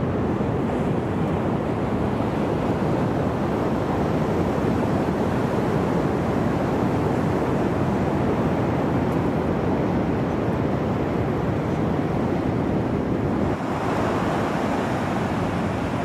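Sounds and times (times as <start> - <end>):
ocean surf rushing: 0.0 - 16.0
wind on microphone: 0.0 - 16.0.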